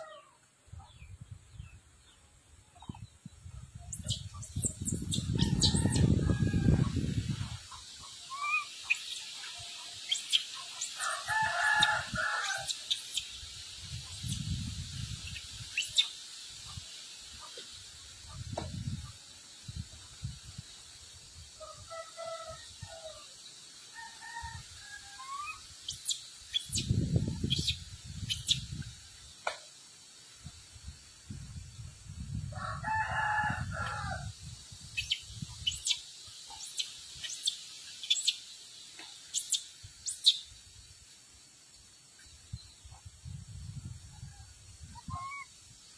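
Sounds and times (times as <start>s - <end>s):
rooster crowing: 5.4s - 7.1s, 11.0s - 12.7s, 32.6s - 34.3s.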